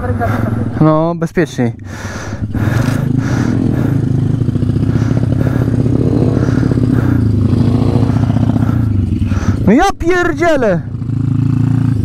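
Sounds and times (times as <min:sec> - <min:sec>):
motorbike engine idling: 0:01.8 - 0:12.0.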